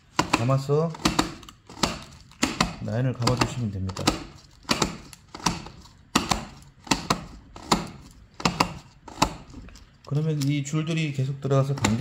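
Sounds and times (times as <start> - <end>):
sharp plastic clicks: 0.0 - 11.0, 11.6 - 12.0.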